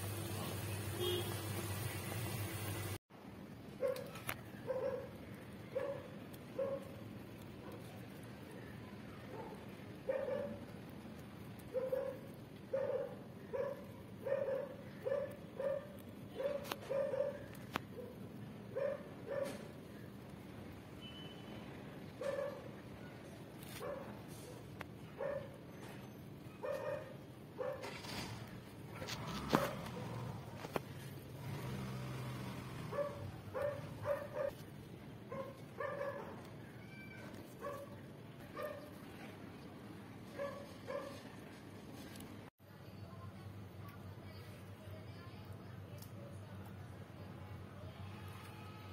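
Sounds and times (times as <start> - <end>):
dog barking: 3.8 - 7.0, 7.6 - 8.0, 9.2 - 10.7, 11.7 - 19.7, 22.2 - 22.8, 23.7 - 25.6, 26.5 - 28.2, 28.9 - 30.3, 32.8 - 34.6, 35.3 - 36.5, 37.6 - 39.1, 40.3 - 41.3.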